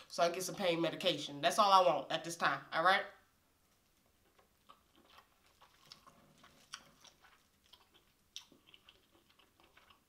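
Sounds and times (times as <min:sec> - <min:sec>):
wet chewing and lip smacks: 0:03.7 - 0:10.0.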